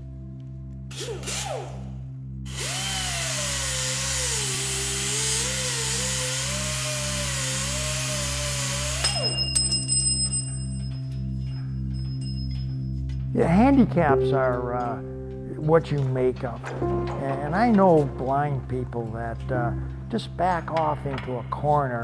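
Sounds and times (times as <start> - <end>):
slow pulsing music drone: 0.0 - 22.0
power tool motor running: 0.9 - 1.9, 2.5 - 9.4.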